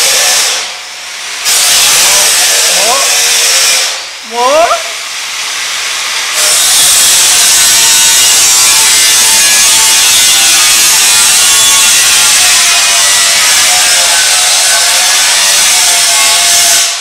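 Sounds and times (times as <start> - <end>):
loud rasping noise: 4.6 - 17.0.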